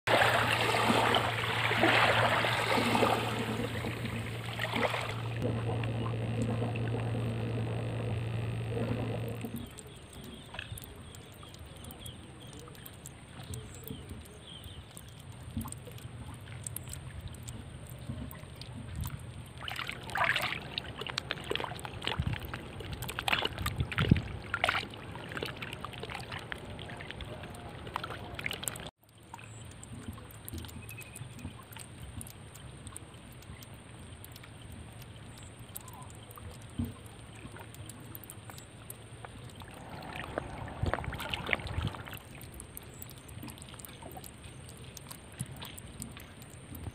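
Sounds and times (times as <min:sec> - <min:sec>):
water lapping along a bank: 0:00.0 - 0:46.9
mudflat hiss: 0:00.1 - 0:09.8, 0:39.3 - 0:43.3
steady low hum: 0:00.1 - 0:10.6, 0:16.0 - 0:28.9, 0:39.0 - 0:46.9
light clicks and taps: 0:26.4 - 0:46.9.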